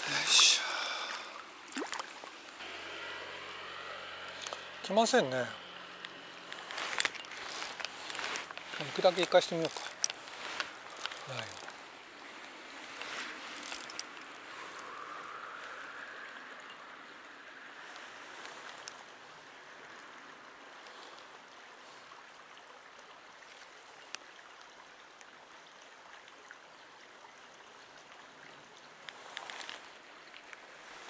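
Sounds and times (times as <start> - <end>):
stream water rushing: 0.0 - 31.0.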